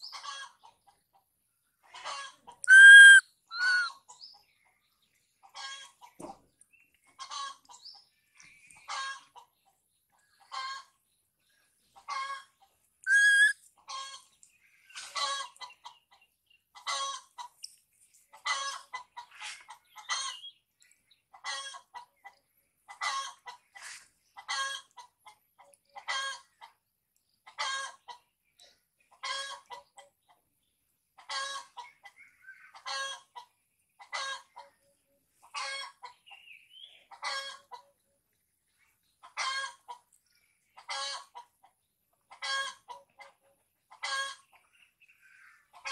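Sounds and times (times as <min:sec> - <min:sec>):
short harsh animal calls: 0:02.6 - 0:04.0, 0:13.1 - 0:13.5.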